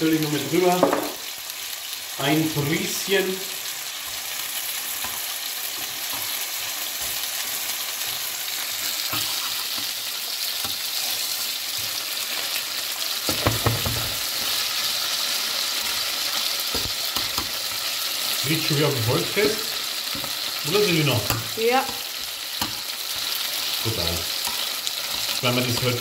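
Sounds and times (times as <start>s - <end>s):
steak sizzling in a frying pan: 0.0s - 26.0s
tongs knocking and scraping pan: 13.2s - 14.2s, 16.7s - 17.6s, 18.6s - 23.4s.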